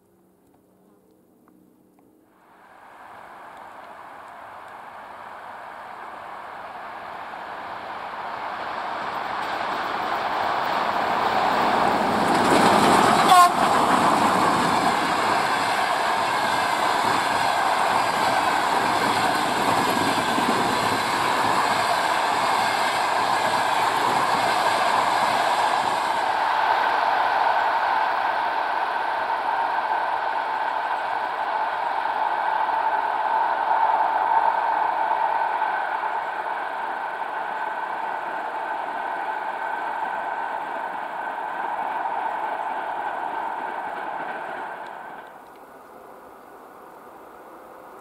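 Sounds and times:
electric locomotive passing: 1.7s - 48.0s
train wheels clattering on rails: 6.9s - 45.6s.

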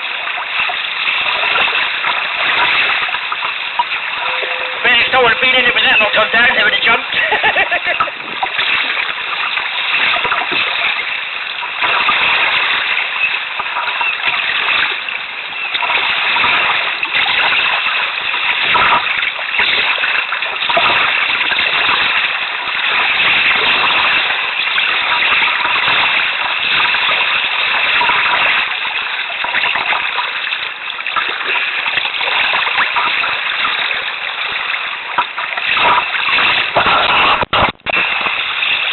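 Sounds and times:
water splashing around a kayak: 0.0s - 38.9s.

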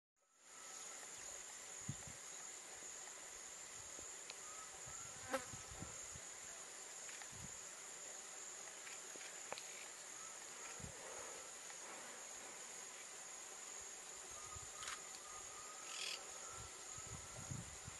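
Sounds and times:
insects chirring: 0.3s - 17.9s.

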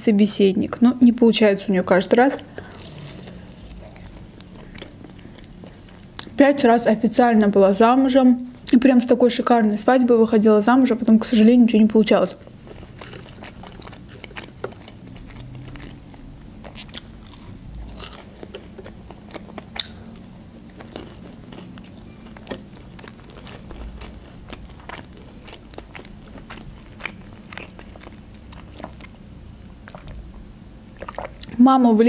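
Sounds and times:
chewing and crunching food: 2.2s - 6.4s, 11.8s - 30.2s, 31.0s - 31.6s.

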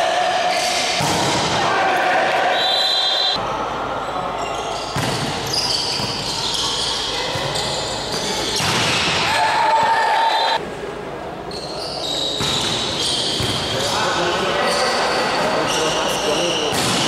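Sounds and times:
shoe squeals: 4.4s - 8.7s, 11.5s - 17.0s
volleyball ball contacts: 4.9s - 6.4s, 7.2s - 10.0s, 16.6s - 17.0s.

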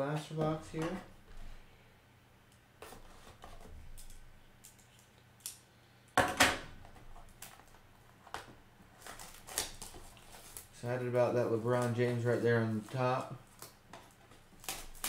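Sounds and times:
shrink wrap crinkling: 8.9s - 15.0s.

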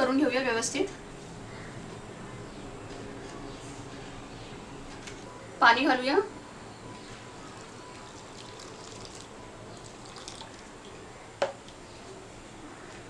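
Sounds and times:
water pouring into bowl: 7.5s - 11.0s.

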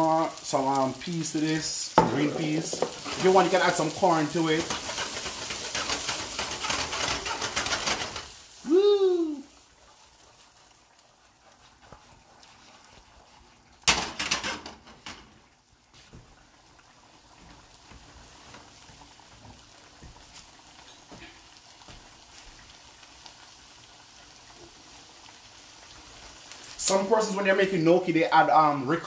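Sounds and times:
food sizzling in a skillet: 0.0s - 29.0s
pan rattling on burner: 2.0s - 8.5s, 13.8s - 15.4s.

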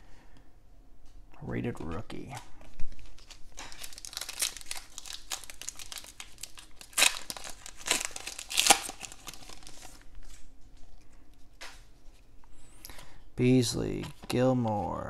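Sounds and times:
foil wrapper tearing and crinkling: 3.0s - 10.0s.

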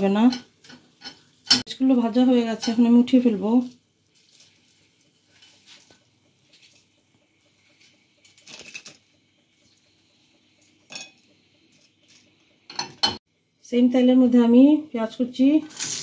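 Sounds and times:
spatula scraping frying pan: 4.2s - 6.9s.

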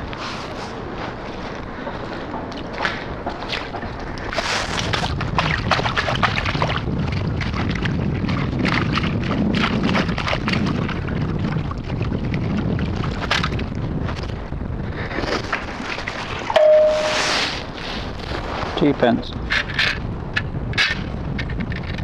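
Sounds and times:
wind rumble on microphone: 0.0s - 22.0s
scoop scraping and crunching sand: 16.7s - 18.1s.

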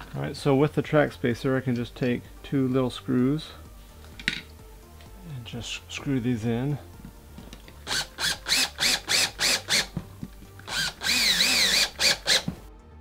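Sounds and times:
cordless drill driving screws: 7.8s - 10.0s, 10.6s - 12.6s.

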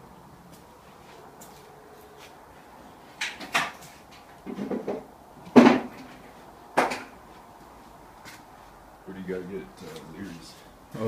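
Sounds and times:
knocks and clunks: 3.2s - 6.2s.

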